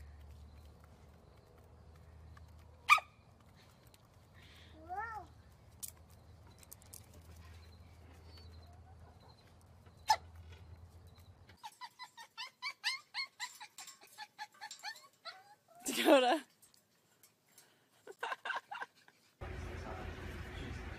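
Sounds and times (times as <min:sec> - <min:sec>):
small dog yapping: 0:02.9 - 0:03.1.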